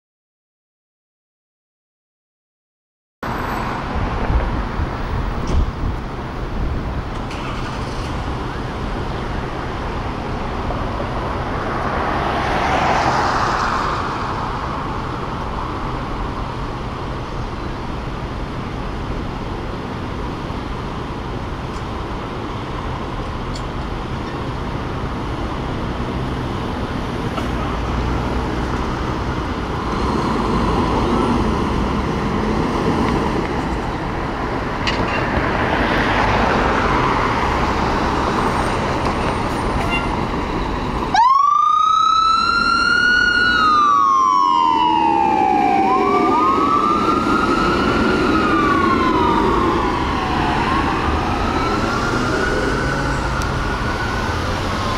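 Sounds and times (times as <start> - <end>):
fire engine diesel running: 6.0 - 10.7
fire engine siren wailing: 40.7 - 54.9.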